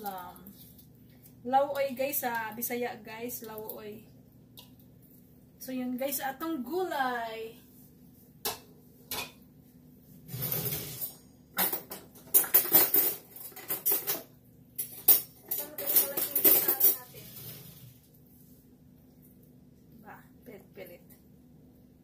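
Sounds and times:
metal kitchenware clinking: 10.3s - 17.6s.

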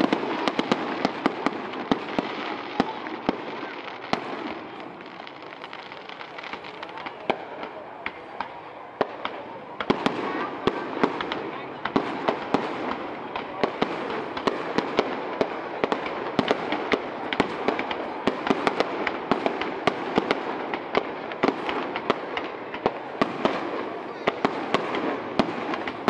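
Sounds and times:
background noise: 0.0s - 26.0s
fireworks bangs and cracks: 0.0s - 26.0s.

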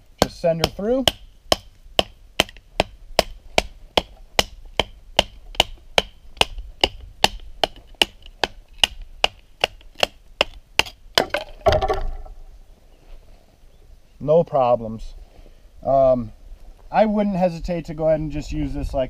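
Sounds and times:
wood splitting: 0.1s - 12.4s.

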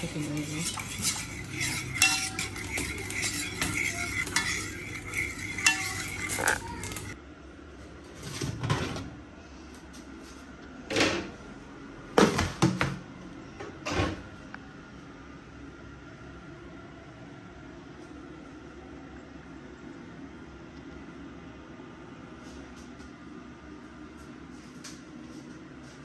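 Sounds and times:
spoon clinking against container: 0.0s - 7.2s
metal roasting tray clanking: 0.1s - 7.2s.

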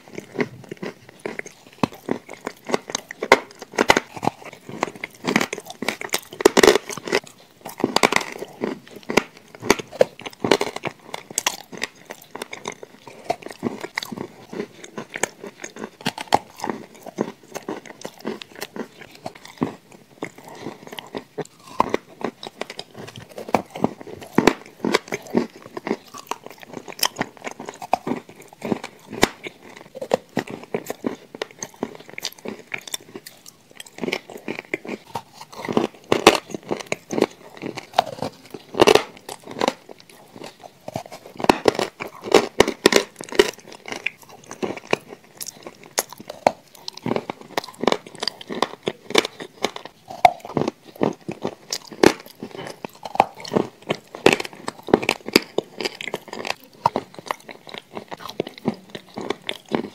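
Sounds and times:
cookie crunching: 0.0s - 59.9s
wet chewing: 0.0s - 59.9s.

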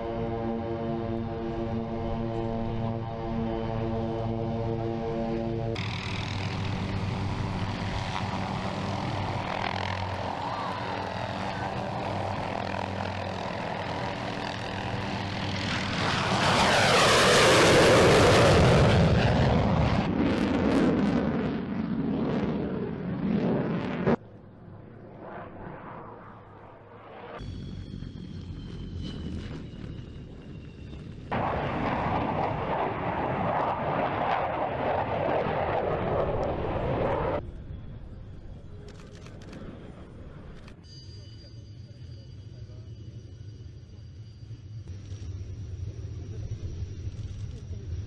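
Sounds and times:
helicopter engine and rotor hum: 0.0s - 19.7s, 27.4s - 31.6s, 32.7s - 48.0s
jet fighter passing overhead: 5.8s - 38.9s.

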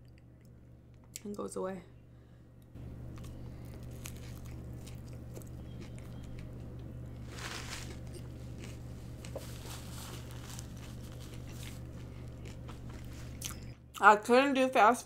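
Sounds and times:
steady low hum: 0.0s - 15.0s
chewing and mouth clicks: 3.1s - 6.9s, 7.8s - 14.0s
paper wrapper crumpling: 7.2s - 8.3s, 9.2s - 12.4s.

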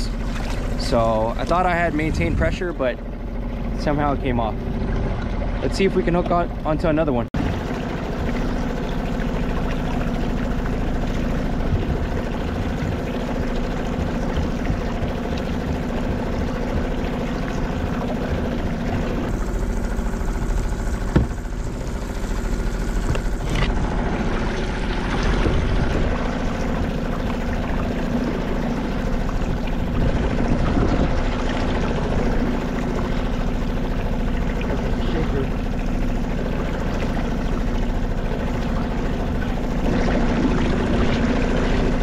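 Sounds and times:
boat engine drone: 0.0s - 42.0s
water sloshing and trickling: 0.0s - 42.0s
sharp knock: 21.1s - 21.4s.

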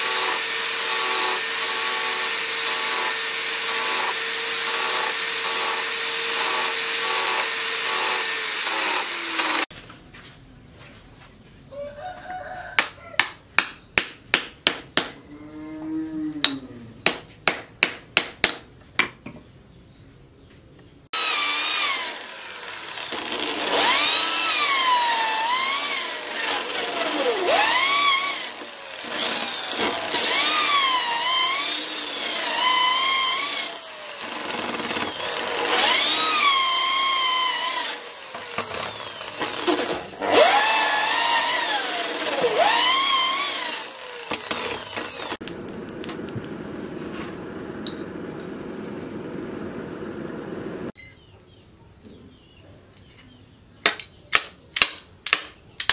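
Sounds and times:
electric drill boring into wood: 0.0s - 9.7s, 21.2s - 45.6s
hammer striking wooden handle: 53.9s - 55.9s.

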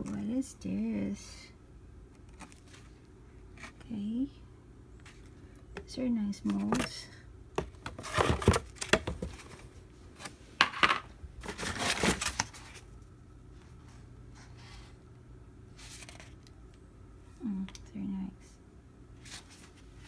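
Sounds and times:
plastic molds clattering and rustling: 5.0s - 12.8s.

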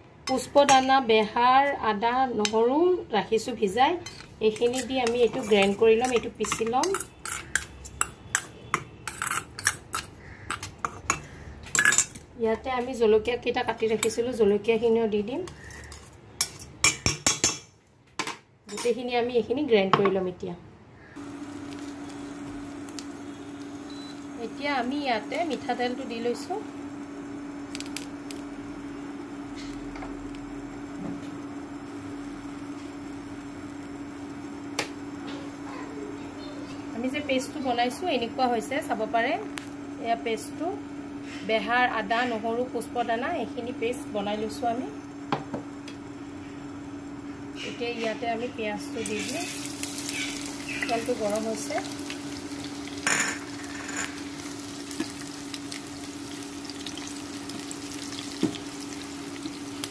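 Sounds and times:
induction cooktop humming: 0.0s - 59.9s
onions sizzling in oil: 49.0s - 59.9s.

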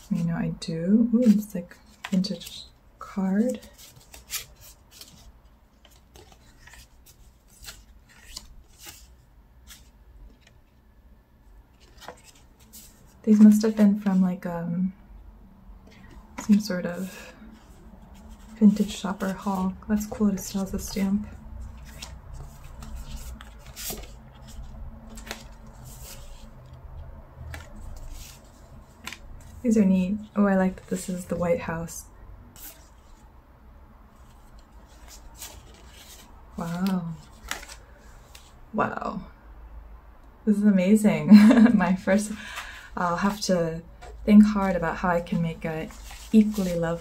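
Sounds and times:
paper cards rustling and sliding: 1.2s - 10.8s, 11.7s - 14.2s, 15.8s - 31.4s, 32.5s - 33.2s, 34.1s - 38.6s, 41.5s - 47.0s
postcards leafed through by hand: 15.9s - 29.7s, 34.2s - 38.6s, 42.4s - 47.0s.

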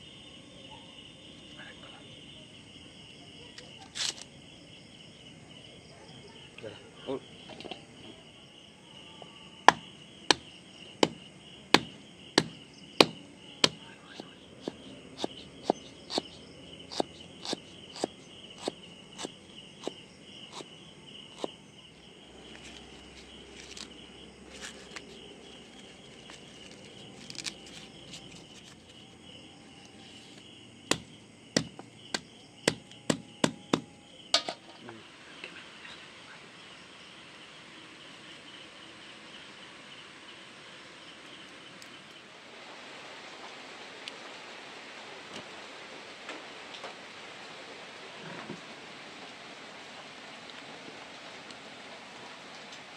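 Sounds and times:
crickets chirring: 0.0s - 52.9s
knife chopping on wooden board: 9.7s - 11.2s, 11.8s - 16.3s, 30.9s - 33.9s.

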